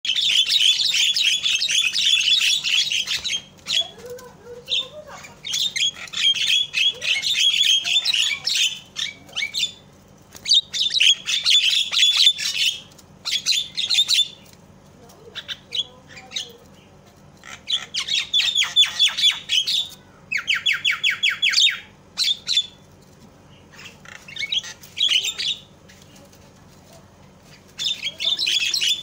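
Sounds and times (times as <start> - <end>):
myna chattering: 0.1 - 9.9, 15.0 - 20.8, 23.6 - 29.0.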